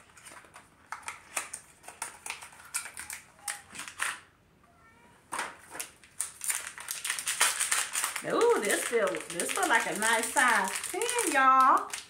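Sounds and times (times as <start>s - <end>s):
faint squeaky tone: 4.6s - 5.2s.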